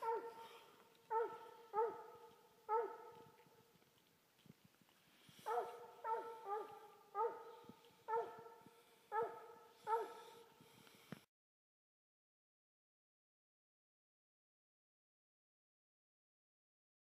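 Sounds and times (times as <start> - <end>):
hound barking: 0.0 - 3.4, 5.4 - 10.5.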